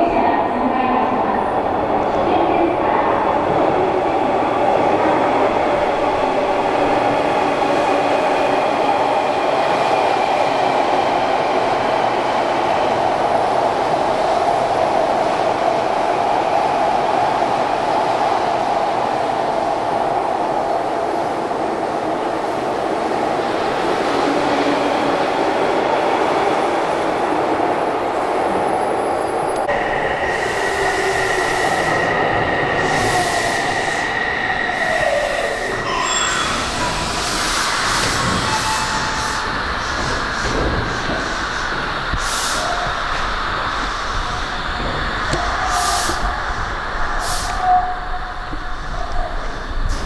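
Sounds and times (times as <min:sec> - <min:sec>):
train wheels rumbling: 0:22.2 - 0:50.0.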